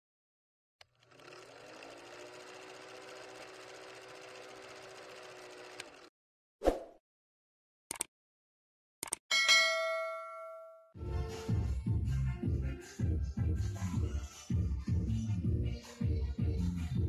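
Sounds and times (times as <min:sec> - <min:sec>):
film projector whirr: 0:00.8 - 0:06.1.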